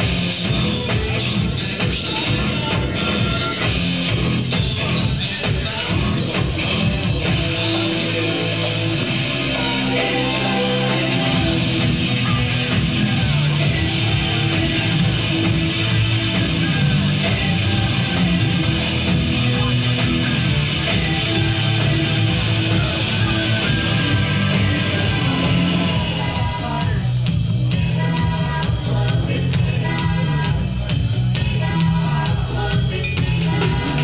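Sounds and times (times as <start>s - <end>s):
loud rock music with guitars: 0.0s - 34.0s.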